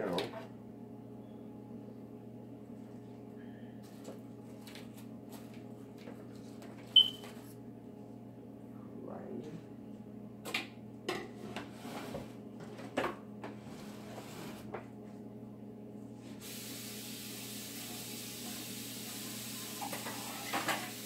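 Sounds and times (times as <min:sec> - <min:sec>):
tap water running: 0:16.4 - 0:21.0
dishes clinking in sink: 0:19.8 - 0:21.0.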